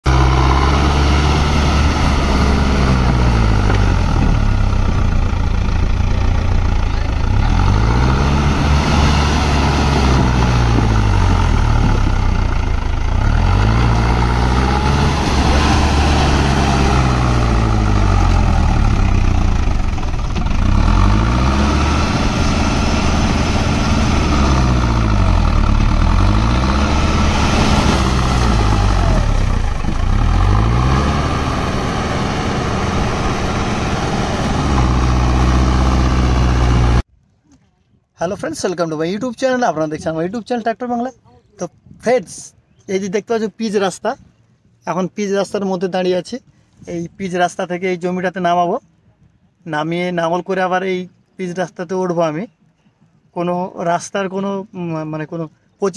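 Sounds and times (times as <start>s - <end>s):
tractor diesel engine under load: 0.0s - 37.1s.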